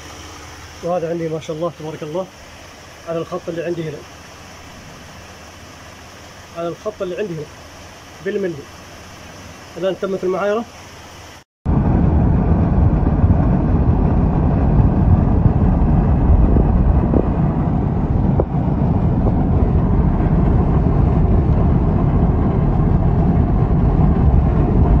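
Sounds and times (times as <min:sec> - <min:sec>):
road and wind noise in car: 0:11.7 - 0:25.0.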